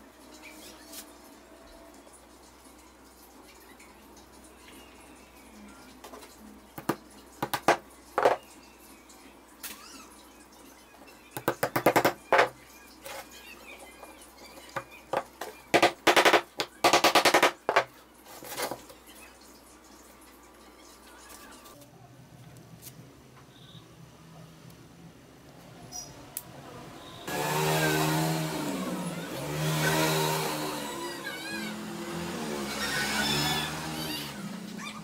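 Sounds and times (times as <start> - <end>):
wooden boards and hinges knocking: 6.8 - 8.4, 11.4 - 12.6, 14.8 - 17.9.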